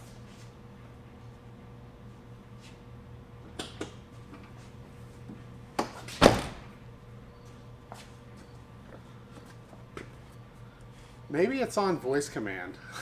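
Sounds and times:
car door thumping shut: 6.2s - 6.6s.

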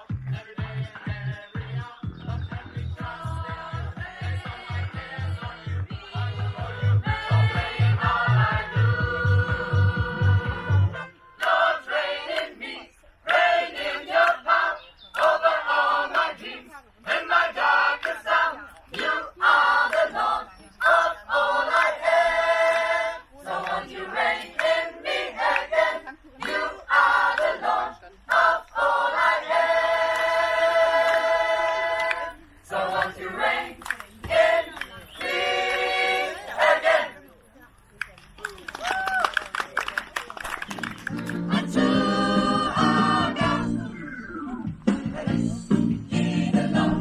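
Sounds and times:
mixed choir singing a cappella: 0.0s - 37.2s, 41.4s - 44.0s, 45.0s - 47.0s.

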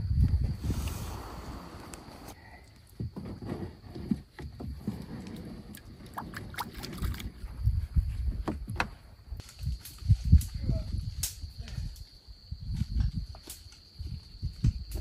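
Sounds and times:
knocks and thumps in canoe: 3.0s - 7.4s.

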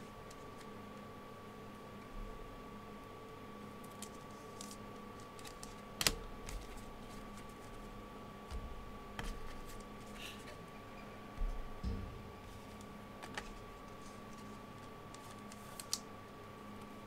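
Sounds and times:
faint high hum: 0.0s - 17.0s
cards and sleeves clicking: 12.7s - 16.1s.

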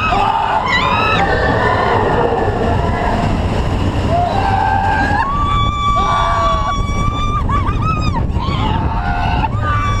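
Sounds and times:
roller coaster rumble: 0.0s - 10.0s
man and woman screaming: 4.1s - 7.5s.

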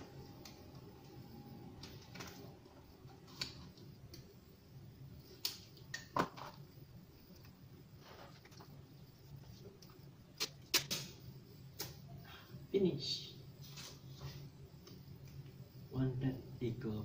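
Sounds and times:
sharp tape snaps: 10.4s - 11.2s.

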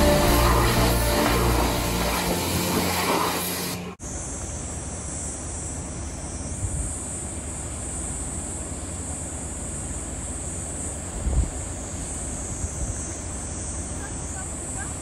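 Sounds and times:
background music: 0.0s - 3.4s.

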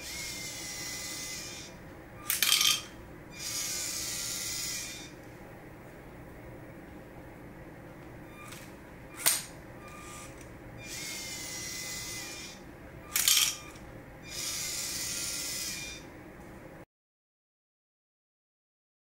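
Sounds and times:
small electric motors whirring: 0.0s - 5.2s, 9.2s - 16.0s.

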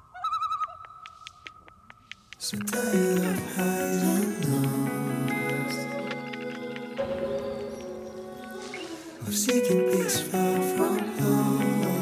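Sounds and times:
background music with long notes: 2.8s - 12.0s.

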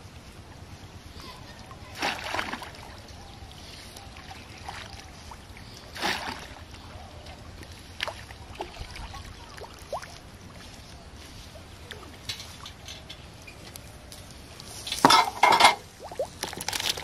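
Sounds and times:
light water sounds: 0.0s - 17.0s
net splashing in water: 1.9s - 3.0s, 6.0s - 6.6s.

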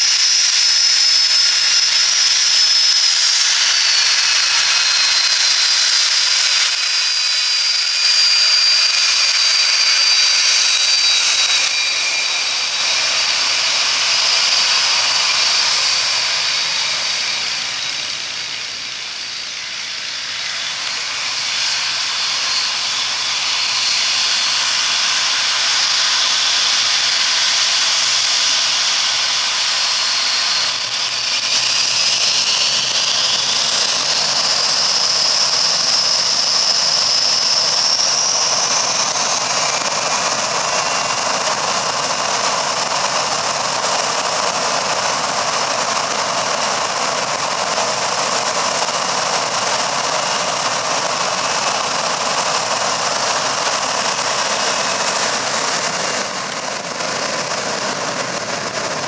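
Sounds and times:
jet engines spooling up: 0.0s - 59.0s
jet engines whining: 0.0s - 59.0s.

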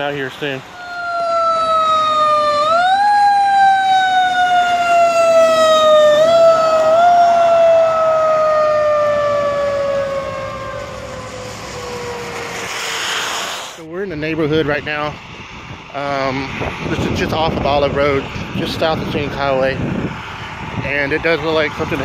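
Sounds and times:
emergency vehicle siren wailing: 0.6s - 13.4s.

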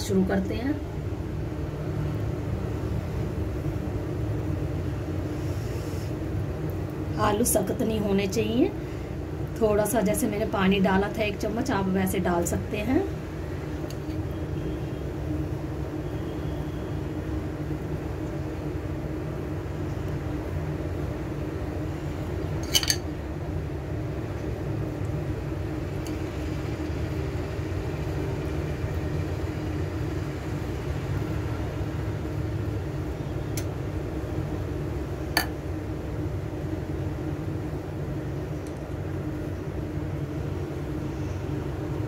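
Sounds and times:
kitchen background hum: 0.0s - 42.0s
knife clinking on glass bowl: 22.6s - 23.0s.

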